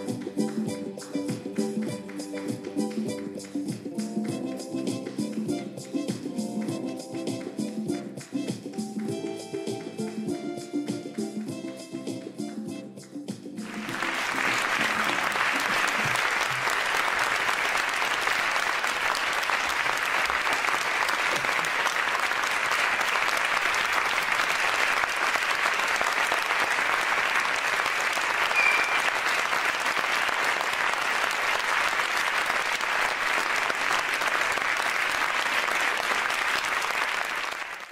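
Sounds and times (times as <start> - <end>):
audience applauding: 13.6 - 37.9.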